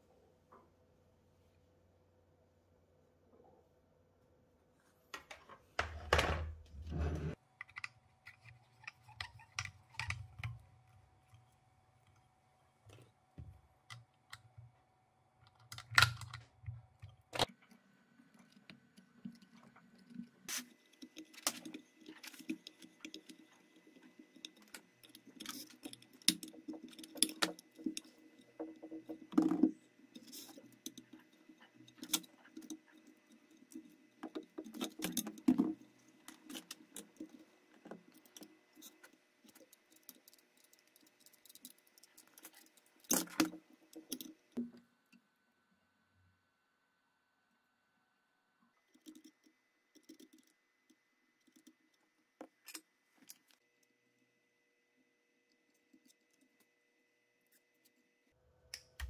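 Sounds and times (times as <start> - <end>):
small metal parts clicking: 19.3 - 44.6.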